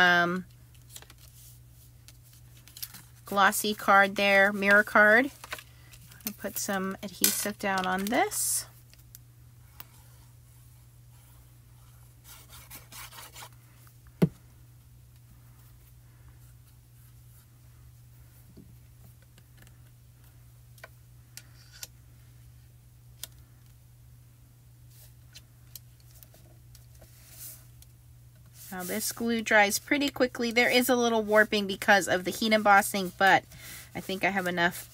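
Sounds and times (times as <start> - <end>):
steady low hum: 0.0 - 34.9
paper rustling and rubbing: 11.0 - 13.7, 30.8 - 34.9.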